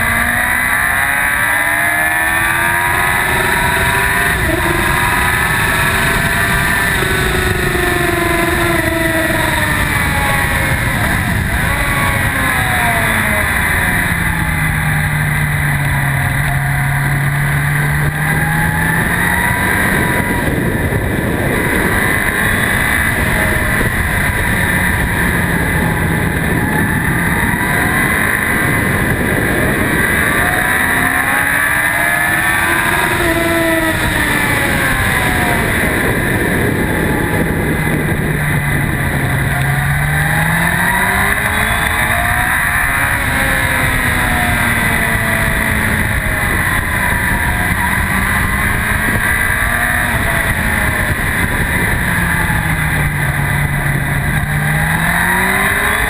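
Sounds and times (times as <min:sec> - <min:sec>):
motorcycle engine revving: 0:00.0 - 0:56.0
wind noise: 0:00.0 - 0:56.0.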